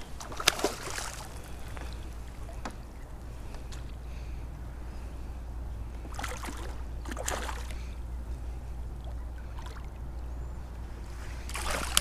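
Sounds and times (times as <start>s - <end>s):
fish splashing in water: 0.0s - 2.8s, 6.0s - 8.0s, 9.0s - 10.1s, 11.4s - 12.0s
steady low rumble: 0.0s - 12.0s.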